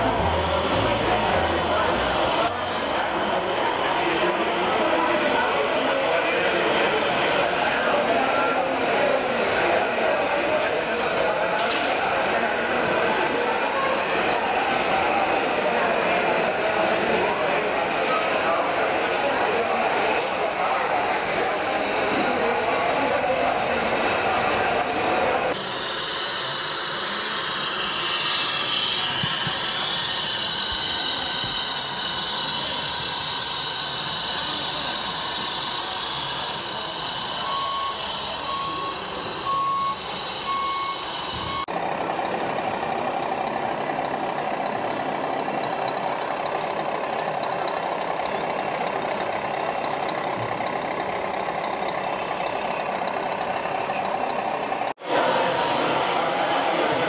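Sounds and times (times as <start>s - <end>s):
model trucks humming and whirring: 0.0s - 57.0s
reversing beeper: 25.5s - 56.0s
high-pitched beep: 37.4s - 54.9s.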